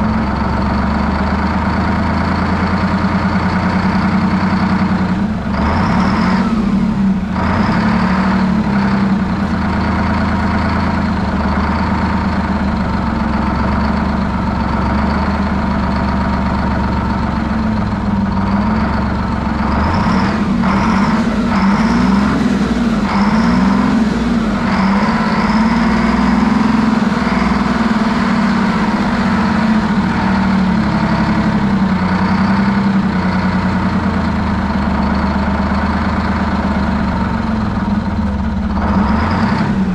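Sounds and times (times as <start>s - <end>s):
diesel engine fast idle: 0.0s - 39.9s.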